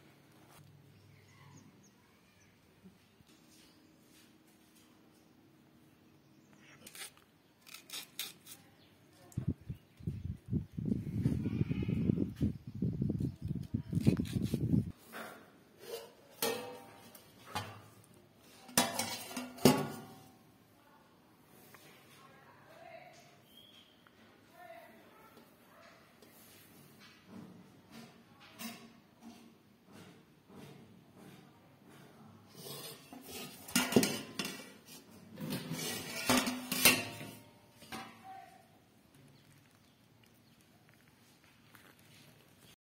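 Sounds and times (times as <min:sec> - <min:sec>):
metal lid clinking on pan: 0:18.8 - 0:20.2, 0:36.0 - 0:38.1.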